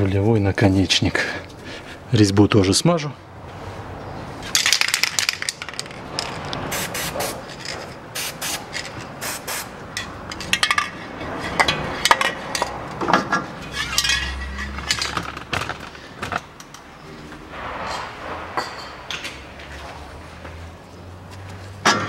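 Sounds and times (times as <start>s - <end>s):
aerosol can spraying: 9.2s - 9.7s.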